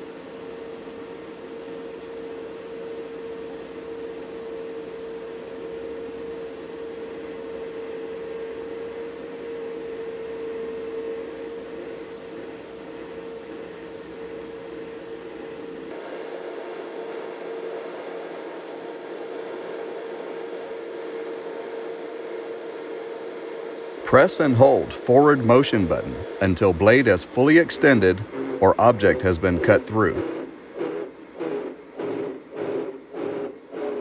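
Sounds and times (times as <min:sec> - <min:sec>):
magnetic saw running whine: 0:00.0 - 0:34.0.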